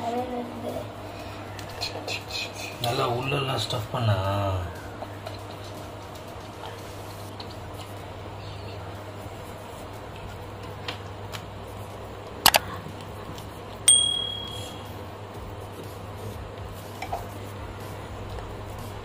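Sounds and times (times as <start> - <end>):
steady low hum: 0.0 - 19.0
metallic ping of steel plate: 13.9 - 14.8.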